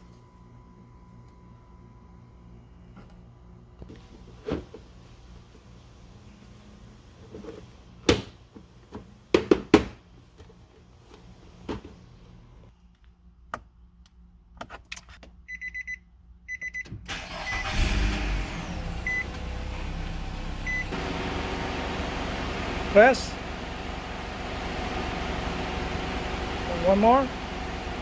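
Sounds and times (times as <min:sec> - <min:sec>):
car engine starting and idling: 0:17.1 - 0:28.0.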